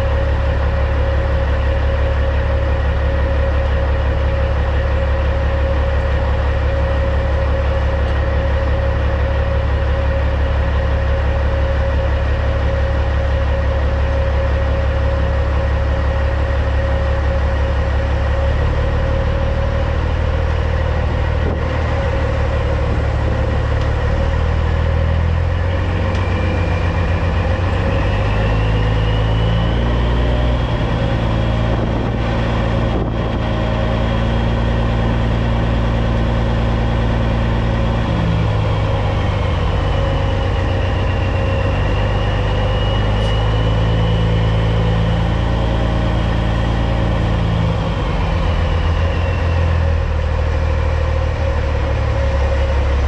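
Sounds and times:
diesel truck engine revving: 0.0s - 53.0s
thin high whistle: 26.3s - 30.0s, 39.8s - 44.4s.

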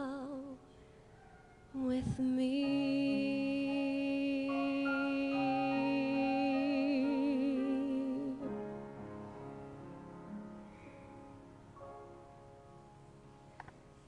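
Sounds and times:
woman singing: 0.0s - 0.6s, 1.8s - 8.6s
keyboard accompaniment: 2.4s - 14.0s.

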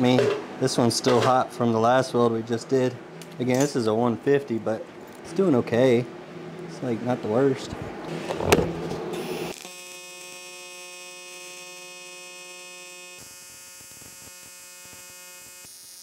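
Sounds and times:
welding arc buzzing: 8.1s - 16.0s
welding arc crack: 13.2s - 16.0s.

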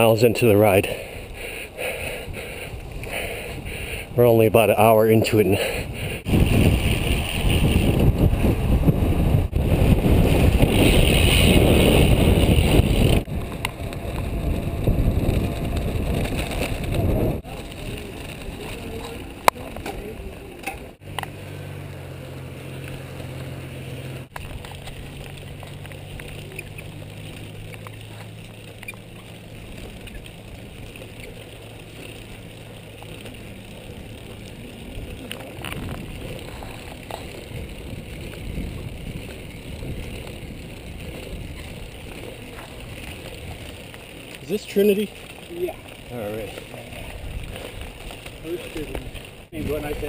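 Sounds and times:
bicycle riding noise: 0.0s - 50.0s
wind buffeting microphone: 1.0s - 4.2s, 5.0s - 21.0s, 34.0s - 44.4s, 45.0s - 50.0s.

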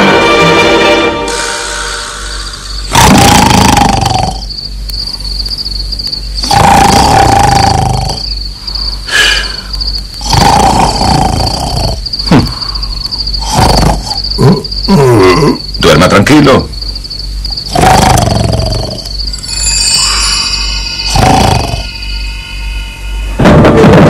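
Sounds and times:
crickets chirping: 0.0s - 24.0s
cartoon snoring: 2.9s - 4.5s, 6.4s - 8.3s, 10.2s - 12.8s, 13.4s - 15.6s, 17.7s - 19.1s, 21.1s - 21.9s.

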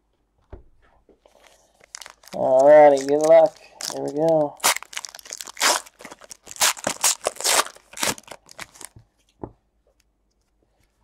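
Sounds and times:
foil wrapper ripping and crinkling: 1.4s - 8.9s.

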